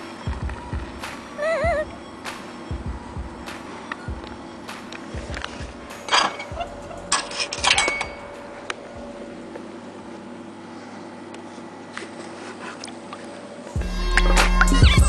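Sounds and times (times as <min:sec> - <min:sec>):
vending machine humming: 0:00.0 - 0:15.0.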